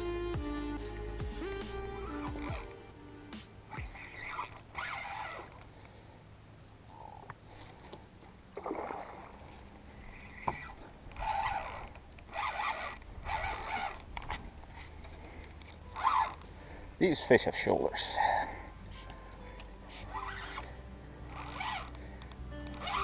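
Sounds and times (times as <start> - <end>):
fishing reel whirring: 2.0 - 2.8, 3.7 - 6.0, 8.6 - 16.6, 18.2 - 23.0.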